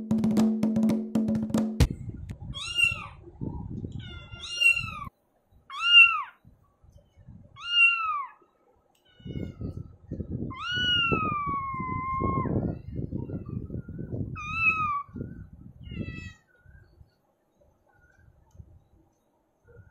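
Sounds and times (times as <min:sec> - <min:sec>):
cat meowing: 0:02.5 - 0:03.2, 0:04.0 - 0:05.1, 0:05.7 - 0:06.3, 0:07.6 - 0:08.4, 0:09.0 - 0:09.8, 0:10.5 - 0:12.4, 0:14.4 - 0:15.1, 0:15.8 - 0:16.4.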